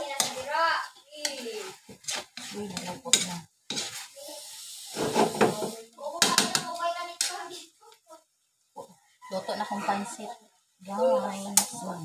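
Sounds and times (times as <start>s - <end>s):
metal spatula scraping a wok: 0.0s - 6.6s
pan sizzling: 0.0s - 9.0s, 9.8s - 12.0s.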